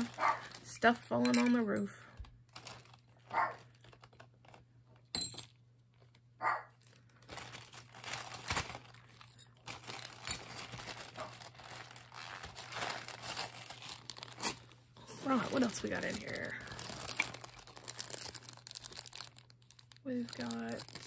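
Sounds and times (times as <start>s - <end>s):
plastic bags crinkling: 0.0s - 21.0s
dog barking: 0.1s - 0.5s, 3.3s - 3.6s, 6.4s - 6.7s.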